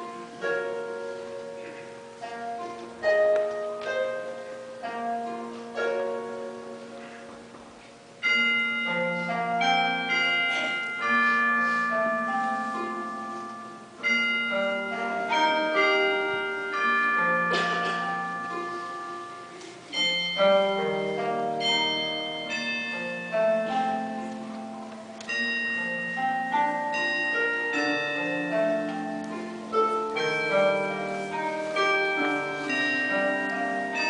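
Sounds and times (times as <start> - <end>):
slow instrumental music: 0.0 - 34.0.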